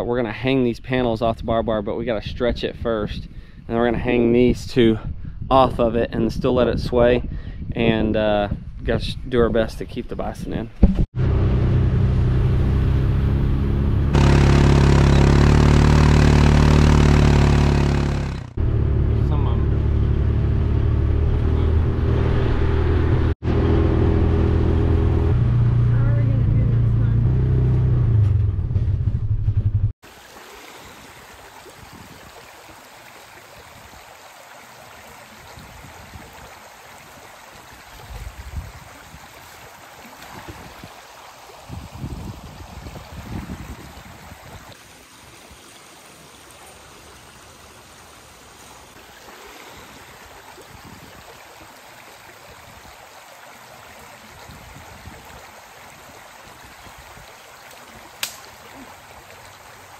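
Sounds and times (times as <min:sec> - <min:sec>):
low bumps: 0:10.6 - 0:30.0
utility vehicle engine running: 0:11.2 - 0:29.9
muddy creek rushing: 0:13.6 - 0:18.6, 0:30.0 - 0:59.9.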